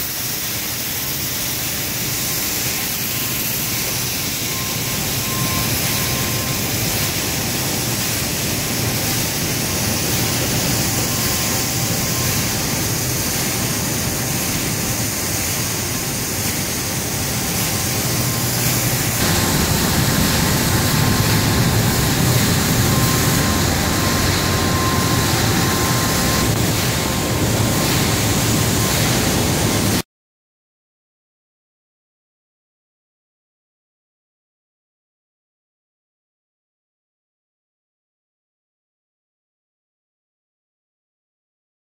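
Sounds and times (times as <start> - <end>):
industrial machinery fans and motors: 0.0 - 30.0
faint high whine: 2.6 - 30.0.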